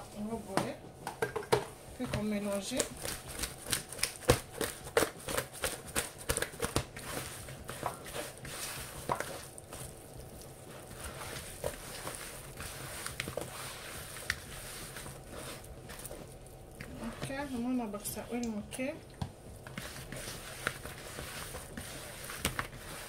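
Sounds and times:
hands rubbing fish in bowl: 2.5s - 18.6s, 19.6s - 23.0s
fish slapping against plastic bowl: 2.8s - 7.1s.

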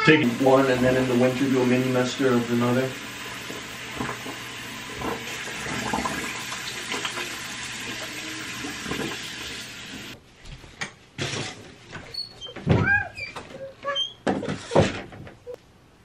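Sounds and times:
toilet flushing: 0.0s - 10.2s.

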